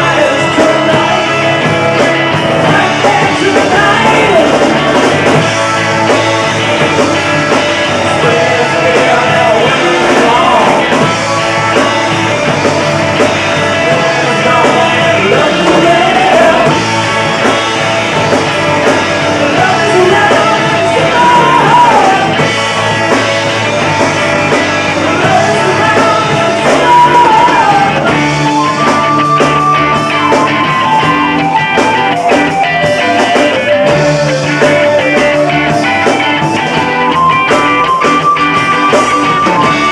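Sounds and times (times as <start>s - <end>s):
man singing: 0.0s - 5.4s, 7.9s - 11.2s, 13.6s - 17.0s, 19.3s - 23.1s, 24.5s - 30.7s
drums: 0.0s - 39.9s
electric guitar: 0.0s - 39.9s.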